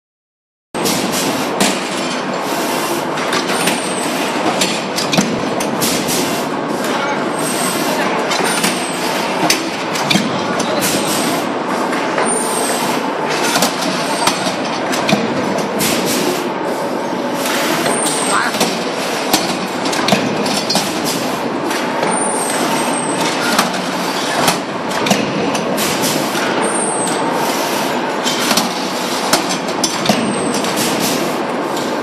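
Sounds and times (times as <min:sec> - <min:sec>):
loud machinery din: 0:17.4 - 0:27.3.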